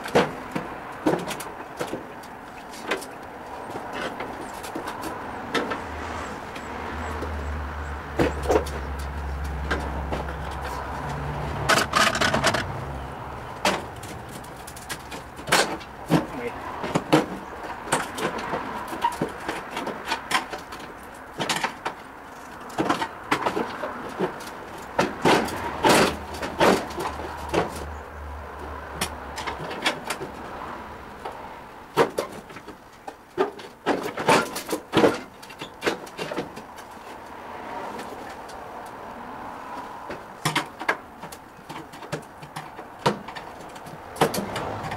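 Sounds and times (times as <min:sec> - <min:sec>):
metal clanks and knocks: 0:08.1 - 0:12.8, 0:13.6 - 0:22.1.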